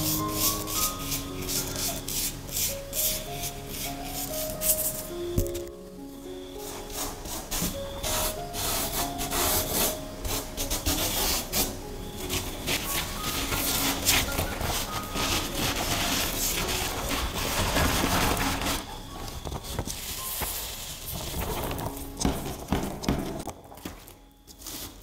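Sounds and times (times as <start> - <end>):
hands rubbing sand on paper: 0.0 - 5.1, 6.6 - 18.9.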